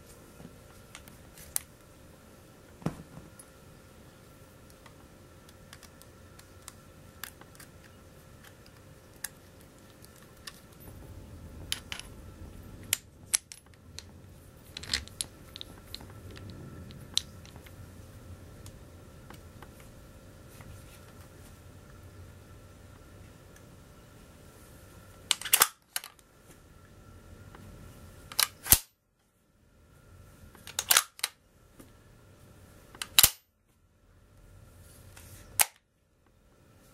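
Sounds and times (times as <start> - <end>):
small metal parts clicking: 14.7 - 17.6
rustle of handling: 19.2 - 21.8, 34.8 - 35.6.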